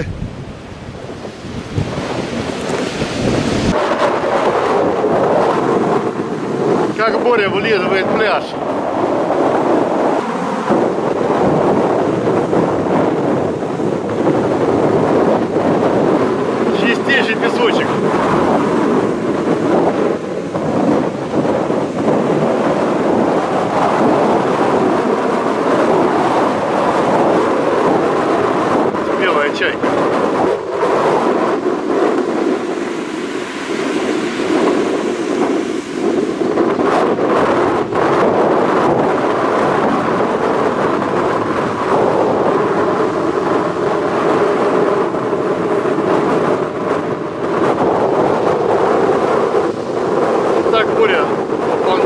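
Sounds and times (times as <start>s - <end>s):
surf breaking on beach: 0.0s - 52.0s
wind buffeting microphone: 0.0s - 52.0s.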